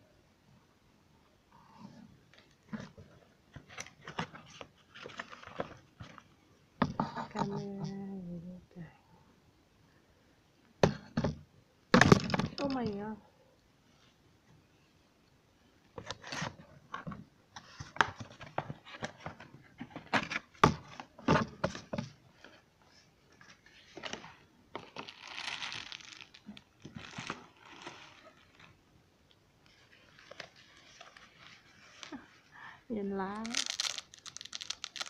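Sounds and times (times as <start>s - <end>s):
packaging rustling and crinkling: 2.4s - 6.3s, 16.0s - 28.8s, 29.6s - 32.5s, 33.3s - 35.0s.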